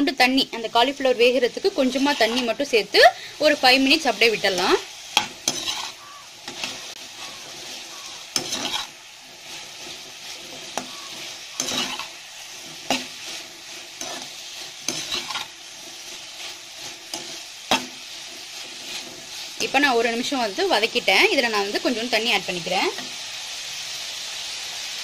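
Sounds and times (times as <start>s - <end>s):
vegetables sizzling in oil: 0.0s - 25.0s
metal spatula scraping a pan: 1.0s - 20.9s.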